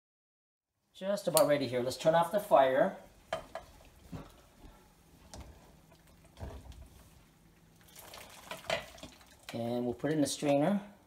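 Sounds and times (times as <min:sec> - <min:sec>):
water sloshing and dripping: 0:05.3 - 0:09.7.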